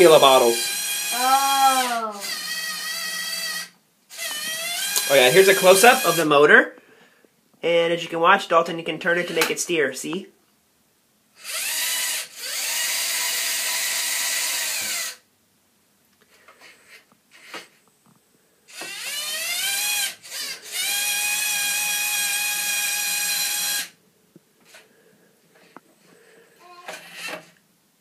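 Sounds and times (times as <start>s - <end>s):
motor and gears whining: 0.5s - 6.2s, 11.4s - 15.2s, 18.7s - 23.9s.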